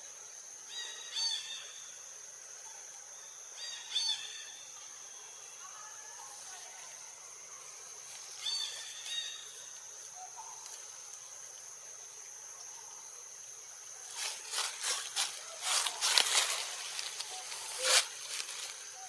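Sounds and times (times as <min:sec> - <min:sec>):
rustling scrapes: 0:14.1 - 0:18.8.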